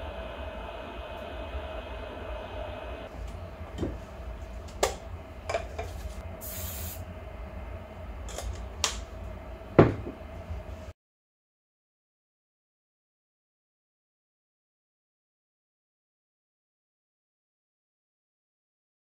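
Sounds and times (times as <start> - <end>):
steady hum: 0.0 - 10.9
aerosol spray hissing: 6.4 - 7.0.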